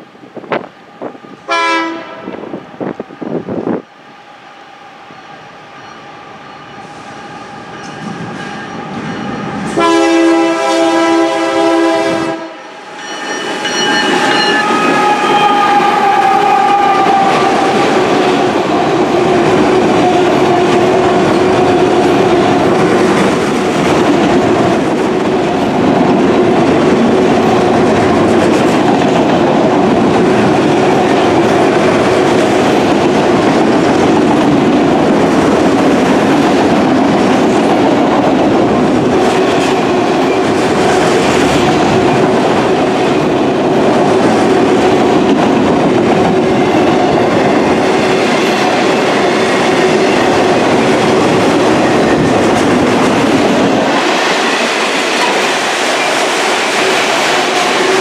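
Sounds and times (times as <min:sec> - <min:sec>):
diesel locomotive engine: 0:00.0 - 0:58.0
train horn blast: 0:01.5 - 0:02.5, 0:09.6 - 0:12.7, 0:14.2 - 0:18.0
train wheels clattering on rail: 0:06.6 - 0:11.0, 0:13.0 - 0:58.0.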